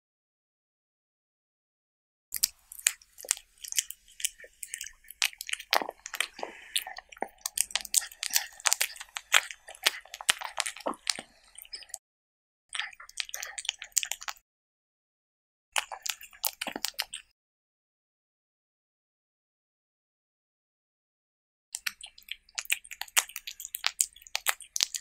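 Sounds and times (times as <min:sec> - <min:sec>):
cat chewing and crunching: 0:02.4 - 0:12.0, 0:12.7 - 0:14.4, 0:15.8 - 0:17.3, 0:21.8 - 0:25.0.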